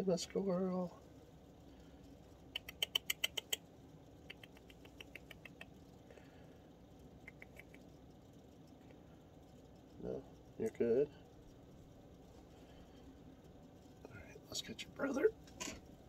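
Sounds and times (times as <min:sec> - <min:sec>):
baby squirrel squeaking: 0:02.5 - 0:05.8, 0:07.2 - 0:08.0.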